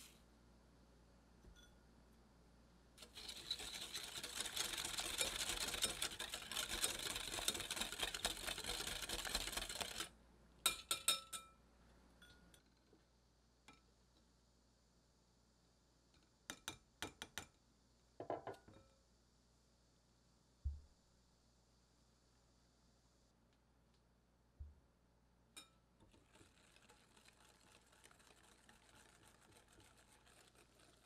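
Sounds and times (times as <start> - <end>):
whisk clattering in glass bowl: 3.0 - 10.1.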